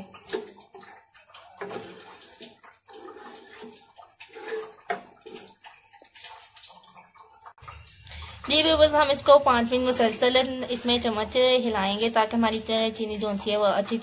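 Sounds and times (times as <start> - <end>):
spatula stirring liquid in a pan: 0.0 - 11.1
liquid sloshing: 0.0 - 14.0.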